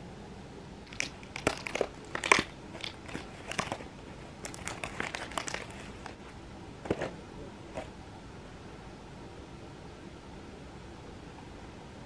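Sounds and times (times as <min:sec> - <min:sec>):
plastic packaging crinkling: 0:00.8 - 0:06.2.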